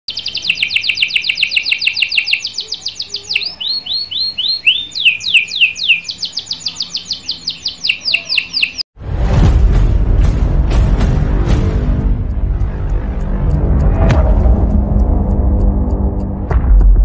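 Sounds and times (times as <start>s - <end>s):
canary singing trills: 0.1s - 8.9s.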